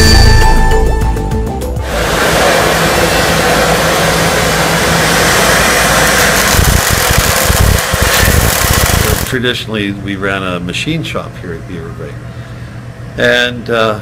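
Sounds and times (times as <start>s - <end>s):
welding arc hissing: 1.8s - 9.4s.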